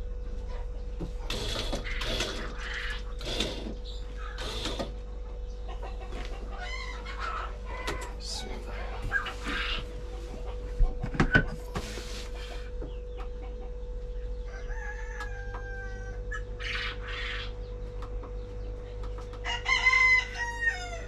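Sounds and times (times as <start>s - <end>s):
roosters crowing: 1.3s - 5.0s, 5.8s - 10.7s, 14.4s - 17.6s, 19.3s - 21.0s.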